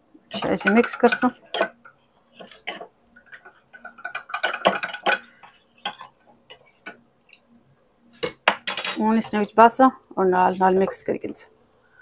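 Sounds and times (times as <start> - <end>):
metal spoon stirring in ceramic bowl: 0.3 - 7.0.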